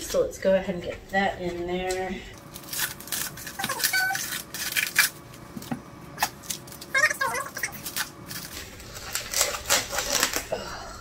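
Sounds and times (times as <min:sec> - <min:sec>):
plastic film crinkling and tearing: 0:02.4 - 0:05.2, 0:06.2 - 0:10.6.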